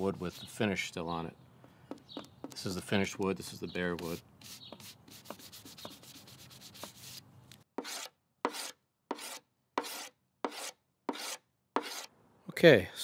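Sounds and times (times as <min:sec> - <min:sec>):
hand scraper scraping wood: 0:04.0 - 0:07.2, 0:07.8 - 0:12.1.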